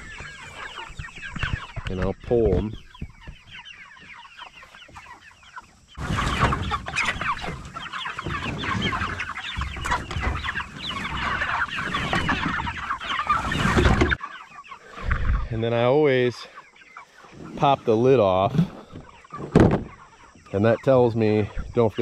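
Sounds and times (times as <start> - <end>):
chickens peeping and clucking: 0.0 - 22.0
wooden coop dragged over grass: 6.0 - 14.2.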